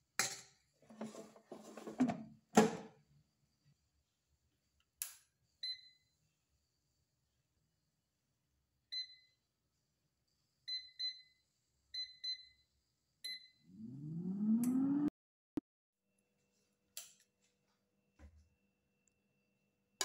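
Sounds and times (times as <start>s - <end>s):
click: 14.6s - 14.8s.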